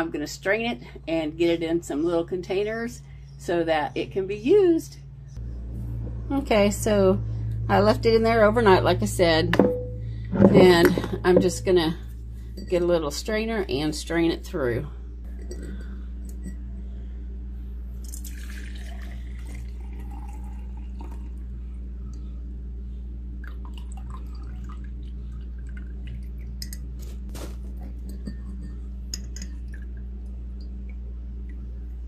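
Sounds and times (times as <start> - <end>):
steady low hum: 0.0 - 32.0
liquid pouring: 18.0 - 21.5, 23.4 - 26.9.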